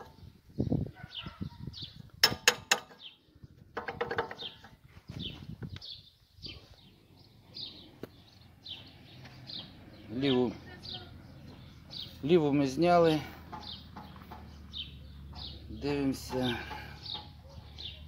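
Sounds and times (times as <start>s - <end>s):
small bird chirping: 4.3s - 12.3s
scraping on metal hub: 15.3s - 17.4s.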